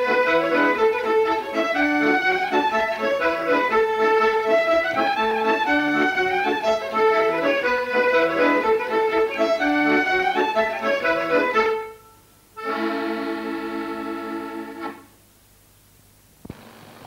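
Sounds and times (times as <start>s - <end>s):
lively accordion music: 0.0s - 15.1s.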